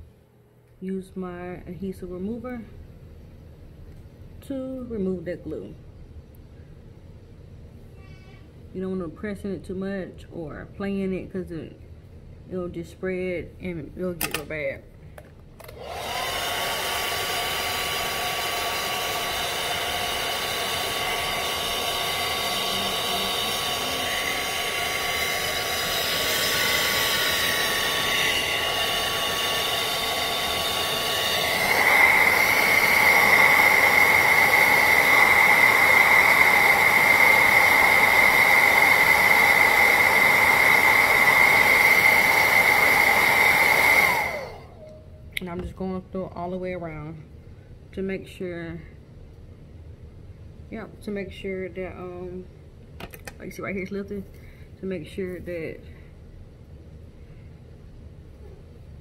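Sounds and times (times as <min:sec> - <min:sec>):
hair dryer running: 0:15.6 - 0:44.8.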